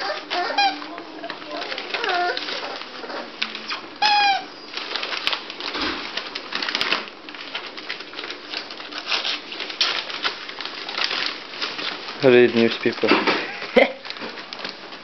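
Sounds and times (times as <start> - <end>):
puppy squealing: 0.0 - 1.0, 1.8 - 4.7
newspaper rustling and crinkling: 0.0 - 15.0.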